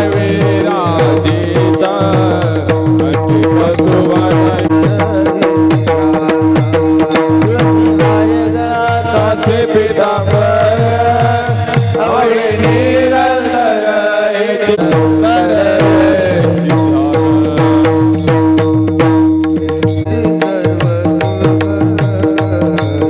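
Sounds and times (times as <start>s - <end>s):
hand drum rhythm: 0.0s - 13.7s, 14.8s - 23.0s.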